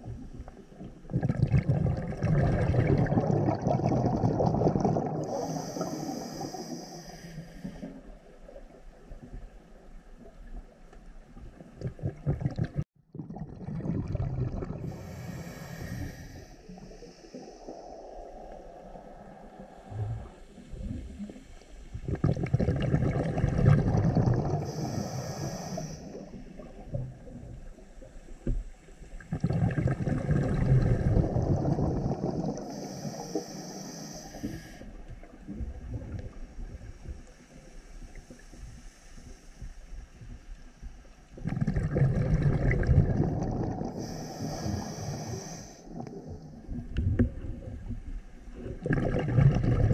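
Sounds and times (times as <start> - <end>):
quiet underwater rumbling: 0.0 - 49.9
exhaled bubbles rushing: 1.0 - 5.5, 11.8 - 15.1, 22.0 - 24.7, 29.2 - 32.8, 41.4 - 44.1, 48.6 - 49.9.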